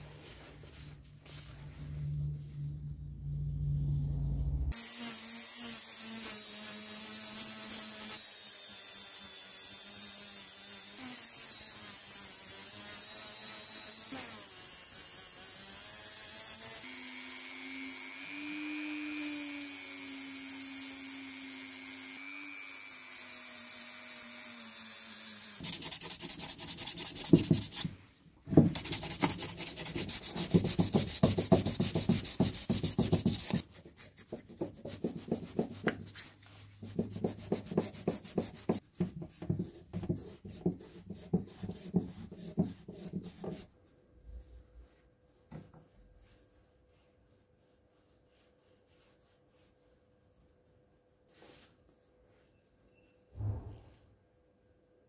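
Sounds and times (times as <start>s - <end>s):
hand sanding strokes: 25.3s - 28.0s, 28.7s - 43.8s, 44.4s - 52.5s.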